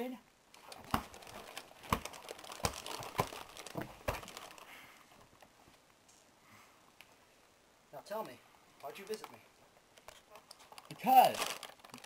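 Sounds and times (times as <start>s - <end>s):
clothes rustling: 0.6s - 6.3s.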